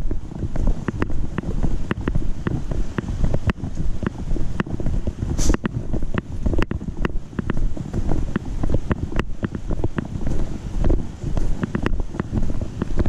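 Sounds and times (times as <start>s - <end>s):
camera knocking with steps: 0.0s - 13.0s
wind rumble on microphone: 0.0s - 13.0s
brief hiss: 5.4s - 5.6s.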